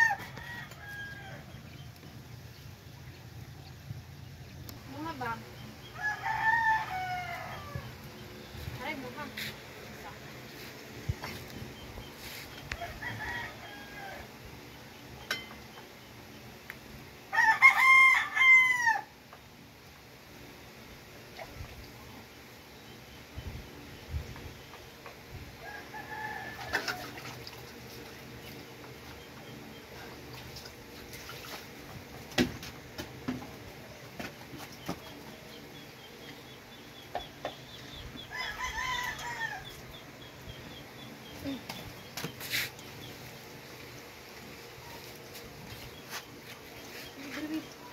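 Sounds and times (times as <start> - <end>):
rooster crowing: 0.0 - 1.5, 5.9 - 7.9, 12.7 - 14.4, 17.3 - 19.2, 25.6 - 27.2, 38.2 - 39.9.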